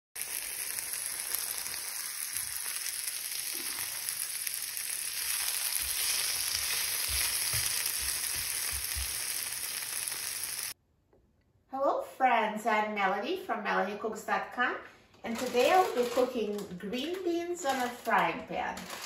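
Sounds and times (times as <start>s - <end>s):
beans sizzling in oil: 0.2s - 10.8s.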